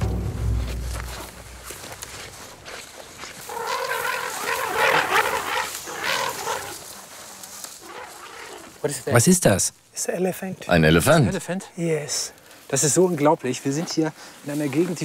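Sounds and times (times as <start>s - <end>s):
elephant calling: 3.4s - 8.8s.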